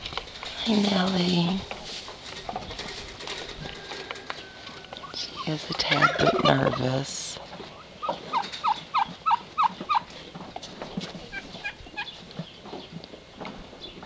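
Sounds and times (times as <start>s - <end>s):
fowl calling: 7.7s - 10.1s.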